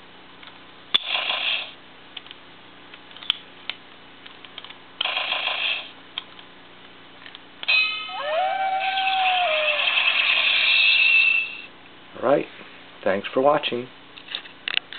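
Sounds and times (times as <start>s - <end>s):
toy electronic sound effects: 7.7s - 11.6s.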